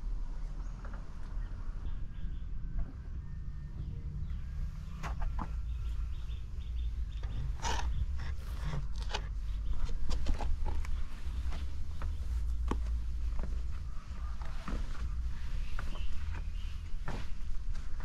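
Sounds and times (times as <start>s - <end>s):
steady low rumble: 0.0s - 18.0s
bird chirping: 0.4s - 17.4s
footsteps: 8.3s - 18.0s.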